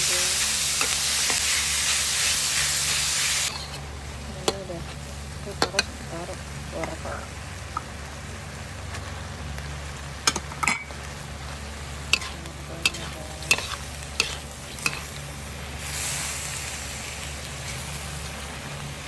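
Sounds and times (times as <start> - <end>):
food sizzling: 0.0 - 19.0
metal spatula scraping a wok: 0.8 - 3.8, 12.1 - 15.2.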